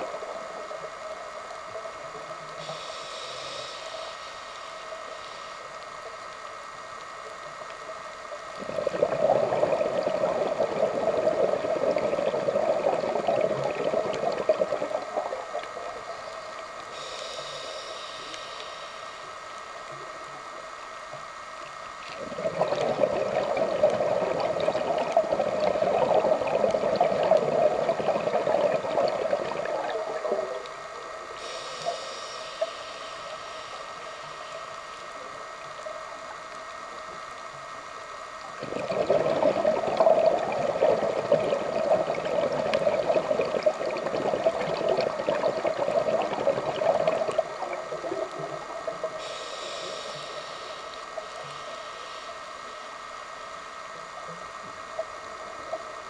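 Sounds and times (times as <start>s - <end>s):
faint steady hum: 0.0s - 56.0s
hissing regulator inhalation: 2.6s - 5.7s, 16.9s - 19.3s, 31.4s - 34.6s, 48.4s - 52.7s
underwater exhalation bubbling: 8.6s - 16.2s, 22.1s - 30.7s, 38.6s - 49.3s.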